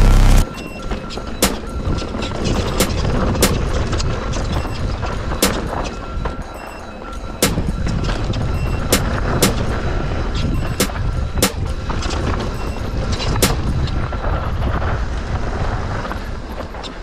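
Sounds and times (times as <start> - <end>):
bike rumbling on rough trail: 11.8 - 17.0.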